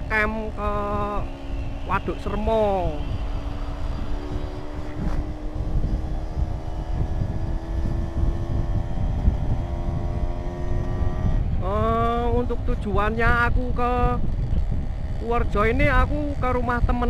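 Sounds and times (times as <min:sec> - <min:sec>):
scooter engine droning: 0:00.0 - 0:16.7
wind rumble on microphone: 0:00.0 - 0:17.0.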